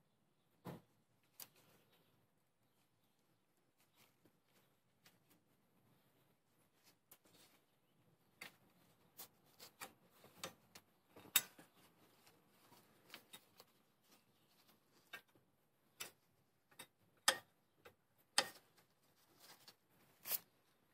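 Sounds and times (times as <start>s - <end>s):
metallic clicks and taps: 16.0s - 18.7s.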